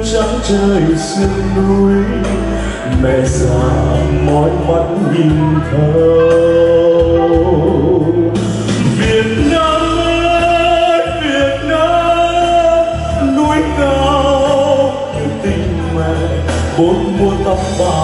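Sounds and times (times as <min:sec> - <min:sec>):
electronic keyboard: 0:00.0 - 0:18.0
man singing: 0:00.0 - 0:18.0.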